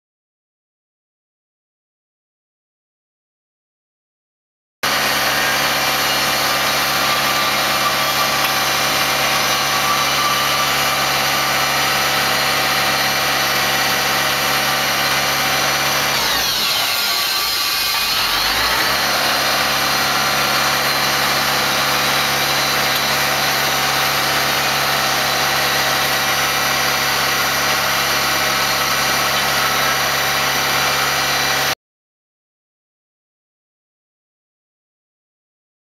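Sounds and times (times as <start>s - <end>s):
forklift engine running: 4.8s - 31.8s.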